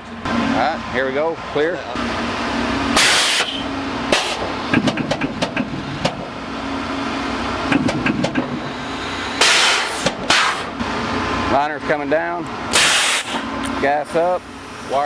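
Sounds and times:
steady machine hum: 0:00.0 - 0:15.0
pneumatic air hiss: 0:03.0 - 0:04.5, 0:08.7 - 0:10.8, 0:12.7 - 0:13.5
sharp clicks and clunks: 0:04.1 - 0:06.3, 0:07.7 - 0:08.6.

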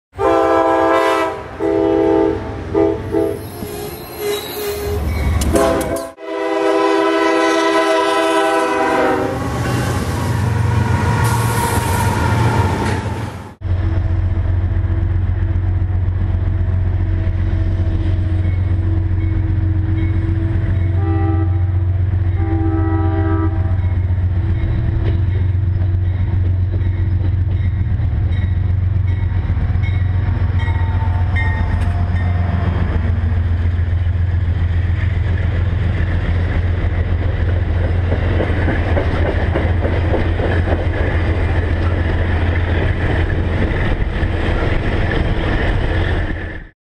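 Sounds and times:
train air horn blasts: 0:00.1 - 0:12.2, 0:17.0 - 0:24.0
train cars rolling past: 0:00.2 - 0:46.7
locomotive low rumble: 0:12.8 - 0:46.6.

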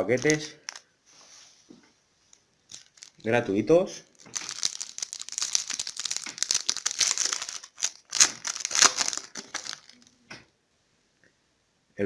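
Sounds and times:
foil packet crinkling: 0:00.0 - 0:00.8, 0:02.7 - 0:03.3, 0:04.1 - 0:10.1.

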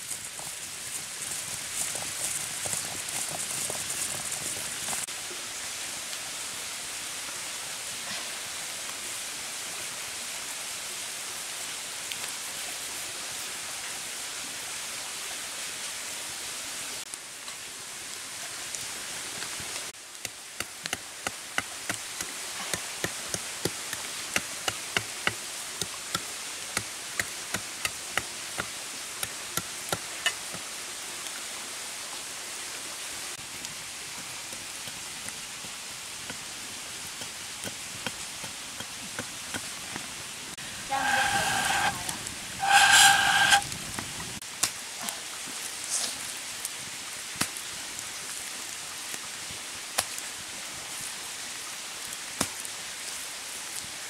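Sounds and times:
wood fire crackling and popping: 0:20.2 - 0:30.6.

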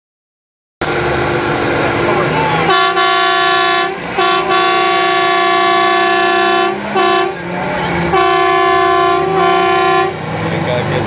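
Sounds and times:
vehicle horn blasts: 0:02.7 - 0:10.2.

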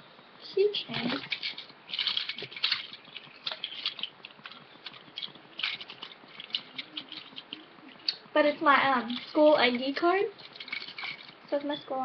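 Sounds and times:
keychain clicking and rattling: 0:10.4 - 0:11.4.

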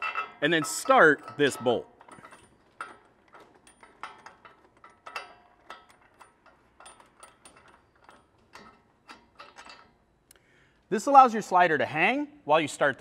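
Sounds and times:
metallic clicks and clinks: 0:00.0 - 0:10.0.

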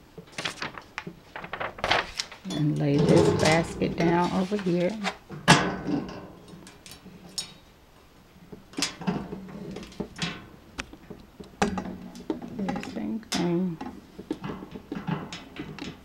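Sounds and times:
metal basket clanking down: 0:02.5 - 0:04.3.

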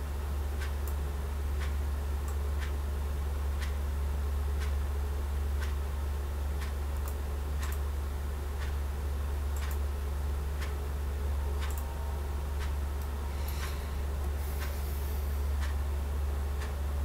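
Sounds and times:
steady low hum: 0:00.0 - 0:17.0
faint clicks: 0:11.6 - 0:11.9.

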